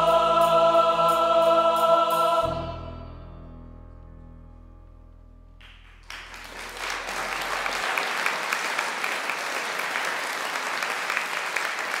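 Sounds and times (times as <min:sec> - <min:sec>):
choir final chord: 0:00.0 - 0:03.7
audience applause: 0:05.6 - 0:12.0.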